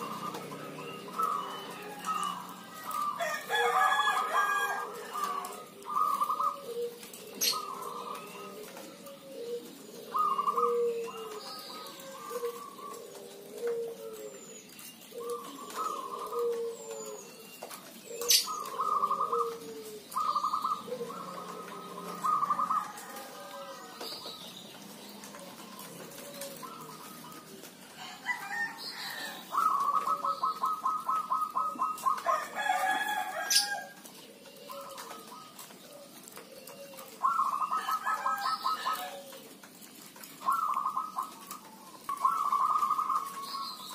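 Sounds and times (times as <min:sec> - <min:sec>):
doves cooing: 0:00.0 - 0:43.9
rooster crowing: 0:01.2 - 0:05.8, 0:21.3 - 0:24.2, 0:27.9 - 0:29.6, 0:32.2 - 0:34.0, 0:37.6 - 0:39.3.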